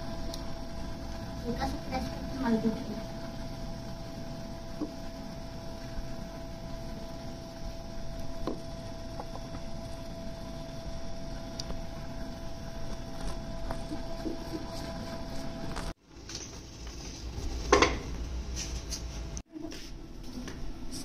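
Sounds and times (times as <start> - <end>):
steady background hum: 0.0 - 21.0.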